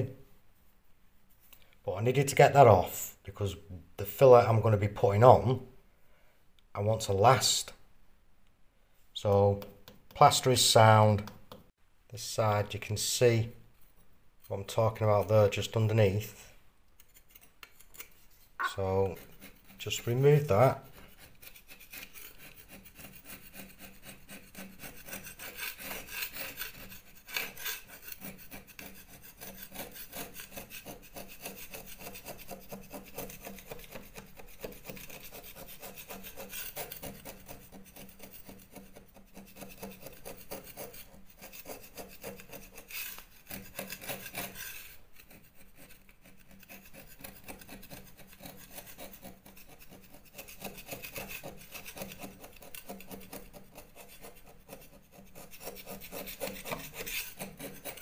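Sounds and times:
scraper blade scraping plaster: 0:13.8 - 0:58.0.

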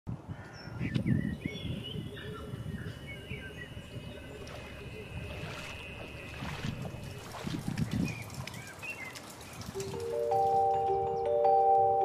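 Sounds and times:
wind rumbling on microphone: 0:00.1 - 0:10.6.

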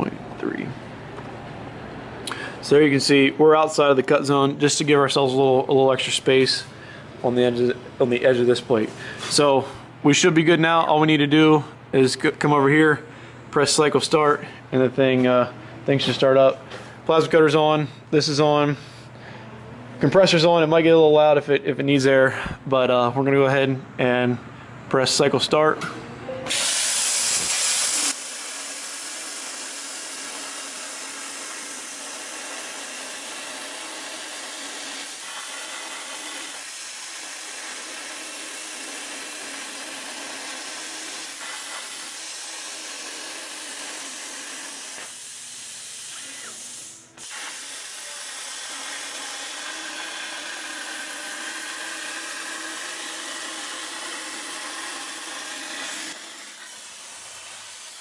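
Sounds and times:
plasma torch hissing: 0:26.5 - 0:58.0.

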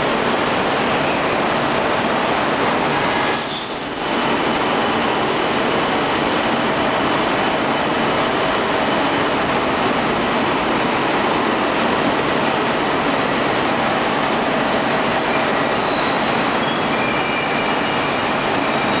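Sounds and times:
train wheels rushing on rails: 0:00.0 - 0:19.0
high thin wheel squeals: 0:03.3 - 0:04.2, 0:15.8 - 0:19.0.

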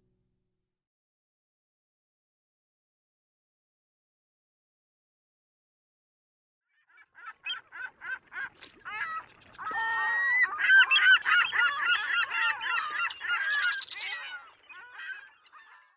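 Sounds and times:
geese honking: 0:07.2 - 0:15.9.

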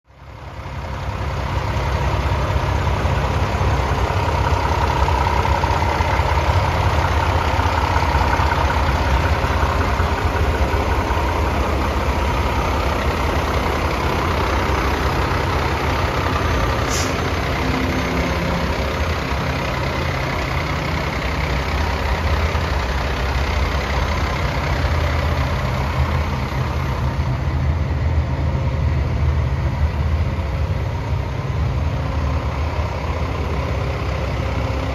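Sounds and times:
diesel truck idling: 0:00.1 - 0:34.9.

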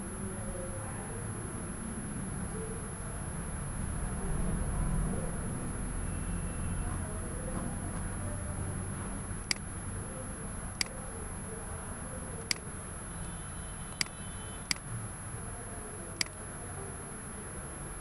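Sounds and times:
low background hum: 0:00.0 - 0:18.0
computer mouse clicking: 0:10.8 - 0:11.0, 0:13.9 - 0:14.9, 0:16.2 - 0:16.4.

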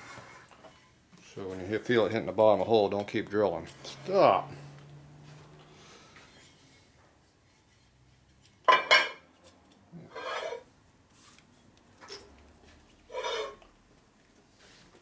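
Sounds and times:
metal scraping on metal: 0:10.0 - 0:10.7, 0:13.1 - 0:13.7.

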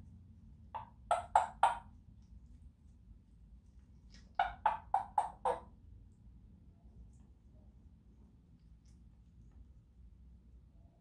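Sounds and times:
parrot clicking calls: 0:00.8 - 0:01.9, 0:04.3 - 0:05.6.

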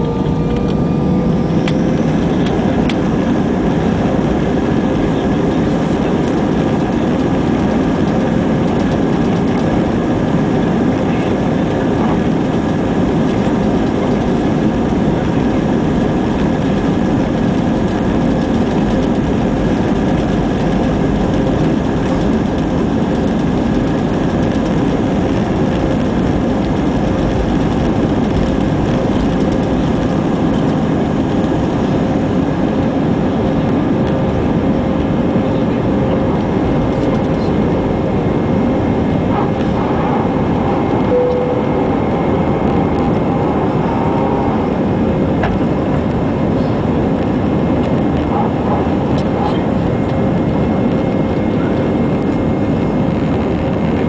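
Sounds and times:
airplane cabin engine rumble: 0:00.0 - 0:54.0
faint steady tones: 0:41.1 - 0:42.6.

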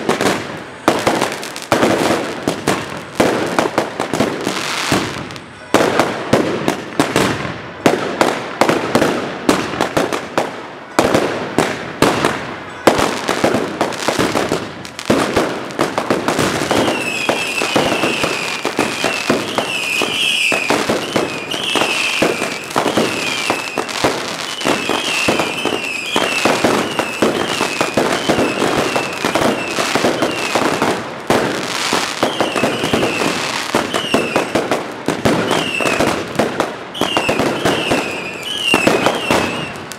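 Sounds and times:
firecracker bangs: 0:00.0 - 0:39.9
short high firework whistles: 0:16.4 - 0:30.8, 0:31.8 - 0:34.7, 0:35.3 - 0:36.2, 0:36.9 - 0:39.9.

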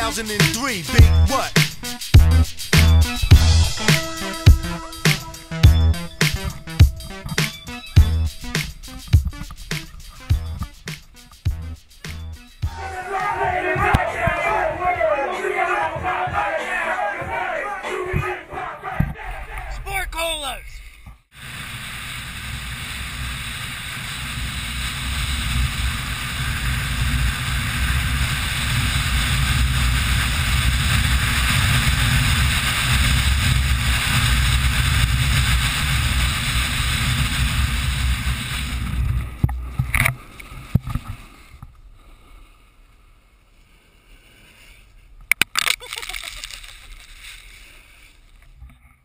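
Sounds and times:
wind on microphone: 0:21.4 - 0:41.2
snowboard sliding over snow: 0:21.4 - 0:45.2, 0:46.0 - 0:48.4.

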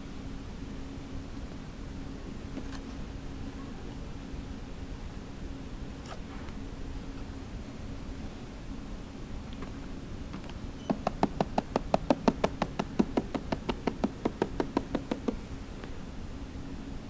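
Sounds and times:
steady low hum: 0:00.0 - 0:17.0
rapid sharp knocks: 0:10.8 - 0:15.4.

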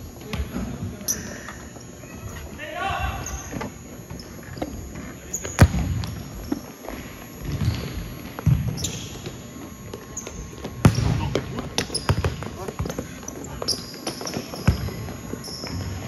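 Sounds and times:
soccer ball thuds in hall: 0:05.4 - 0:06.6, 0:07.4 - 0:16.0.

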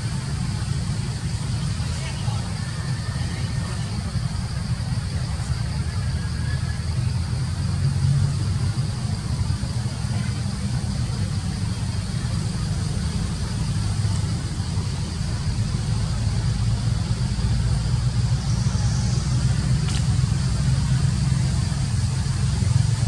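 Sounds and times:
steady low rumble: 0:00.0 - 0:23.0
small click: 0:19.8 - 0:20.1.

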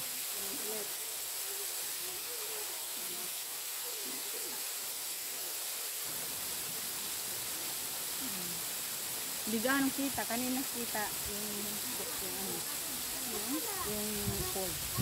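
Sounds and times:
waterfall rushing: 0:00.0 - 0:15.0
faint distant voices: 0:00.1 - 0:06.0.

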